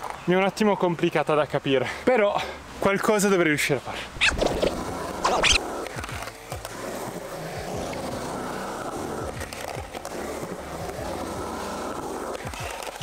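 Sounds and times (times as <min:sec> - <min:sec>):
skateboard wheels rolling on concrete: 0:00.0 - 0:13.0
background music: 0:04.6 - 0:13.0.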